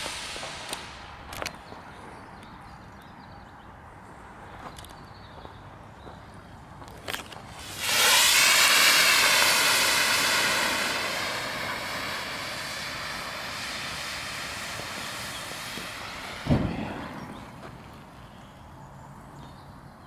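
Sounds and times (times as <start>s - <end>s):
hiss of escaping gas: 0.0s - 1.2s, 7.6s - 17.6s
low burst of ignition: 0.0s - 1.6s, 7.5s - 18.2s.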